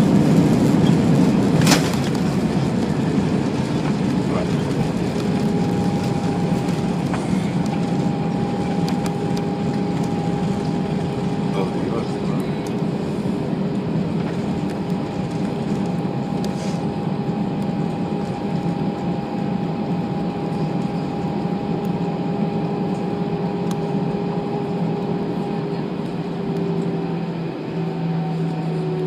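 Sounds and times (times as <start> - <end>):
low rolling rumble: 0.0 - 17.5
jet engine hum: 0.0 - 29.0.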